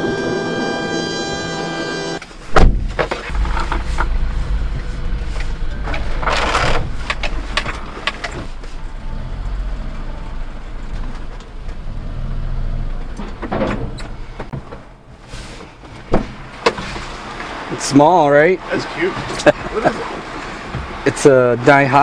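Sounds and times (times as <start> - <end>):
small truck engine running: 0.0 - 22.0.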